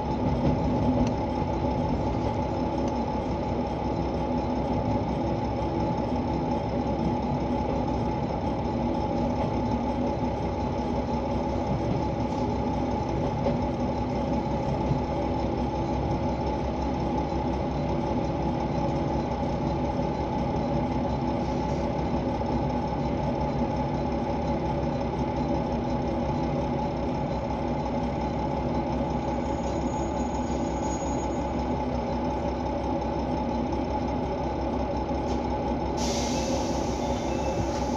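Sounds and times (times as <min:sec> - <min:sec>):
diesel engine idling: 0:00.0 - 0:37.9
hiss: 0:36.0 - 0:37.9.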